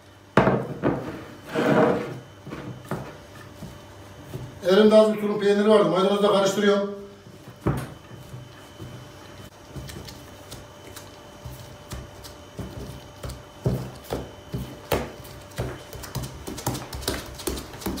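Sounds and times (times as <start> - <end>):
hands patting dough on wood: 2.4 - 5.1, 7.3 - 18.0.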